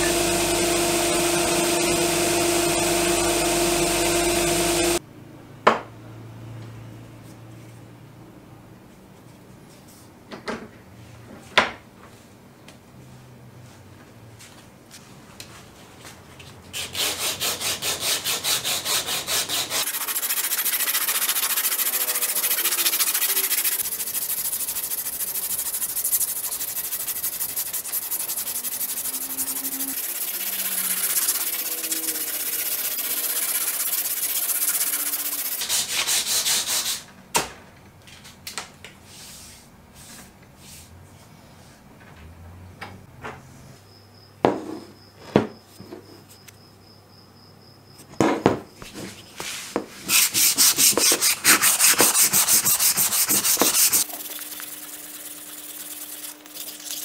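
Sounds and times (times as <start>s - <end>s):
abrasive cloth rasping on wood: 16.8s - 36.6s, 50.1s - 56.3s.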